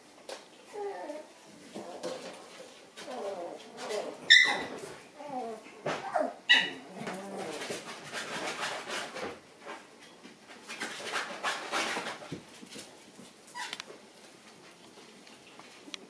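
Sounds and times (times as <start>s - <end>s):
puppies scuffling: 0.2s - 16.0s
small puppy noises: 0.6s - 8.8s
puppy yip: 4.3s - 4.7s, 6.0s - 6.8s.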